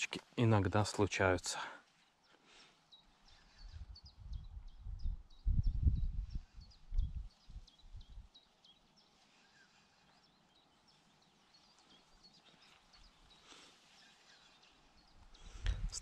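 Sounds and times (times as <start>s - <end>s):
small birds chirping: 0.0s - 16.0s
wind buffeting microphone: 3.6s - 8.3s, 15.3s - 16.0s.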